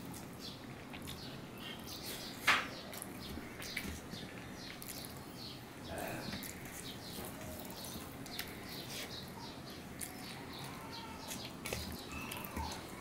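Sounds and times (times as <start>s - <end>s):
wet chewing and lip smacks: 0.0s - 5.4s, 6.4s - 10.5s.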